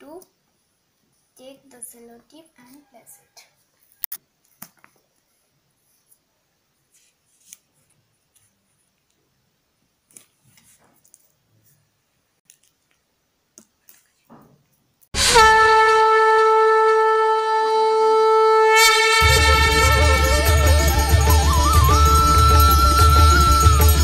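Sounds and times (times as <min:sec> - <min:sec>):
climbing melody: 0:15.2 - 0:24.0
long blown note: 0:15.2 - 0:24.0
bass beat and drone: 0:19.2 - 0:24.0.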